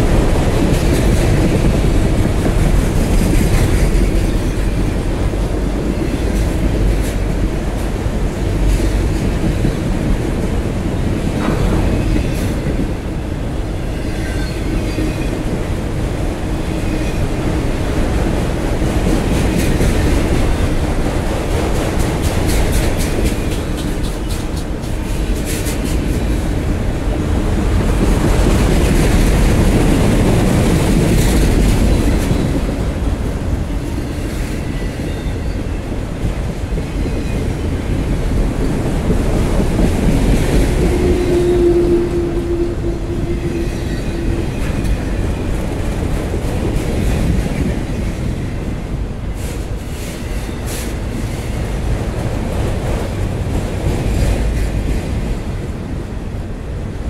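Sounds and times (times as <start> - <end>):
steel wheels rumbling on rails: 0.0 - 57.0.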